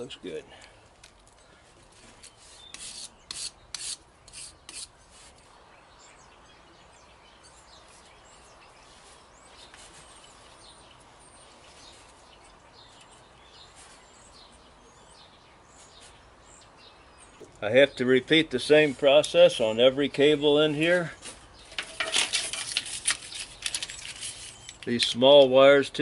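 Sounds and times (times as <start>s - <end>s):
faint birdsong: 0.0s - 26.0s
sandpaper scraping metal: 2.4s - 5.3s.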